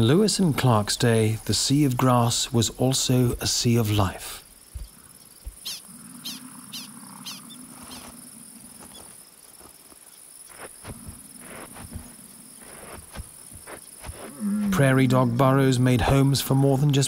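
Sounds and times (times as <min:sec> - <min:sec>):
crickets and insects buzzing: 0:00.0 - 0:17.0
prairie dog warning barks: 0:05.6 - 0:08.2
soft crunches: 0:07.7 - 0:15.0.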